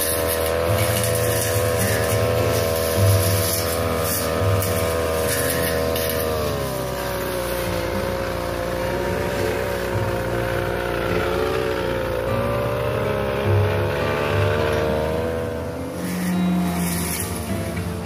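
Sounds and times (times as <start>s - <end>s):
blade crackling through leaves: 0.0s - 18.0s
brush cutter engine running: 0.0s - 18.0s.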